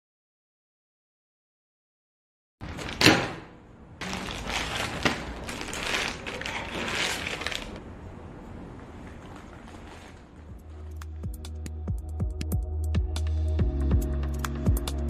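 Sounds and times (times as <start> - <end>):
wiper blades scraping and rustling: 4.0 - 8.0, 8.6 - 11.0.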